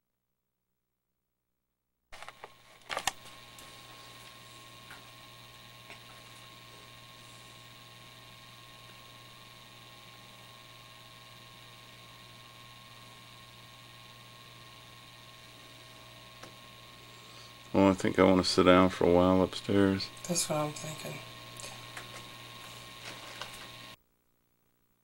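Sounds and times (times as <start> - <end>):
camcorder handling clicks: 2.2 - 3.3
faint electrical hum: 2.2 - 25.0.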